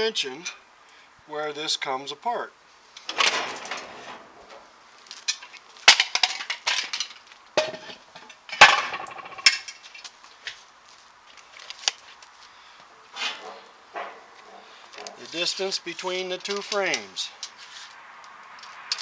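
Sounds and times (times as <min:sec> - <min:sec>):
metal parts clanking: 0:03.1 - 0:04.6, 0:05.2 - 0:10.0.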